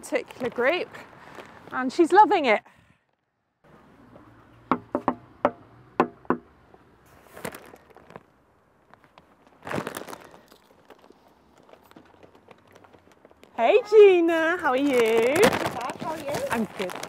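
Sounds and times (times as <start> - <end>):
sharp hollow taps: 4.7 - 6.5
paper bag rustle: 7.1 - 17.0.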